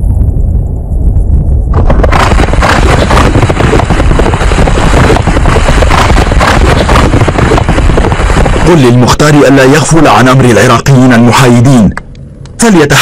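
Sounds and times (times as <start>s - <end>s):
low rumble: 0.0s - 12.6s
horse galloping: 1.7s - 9.0s.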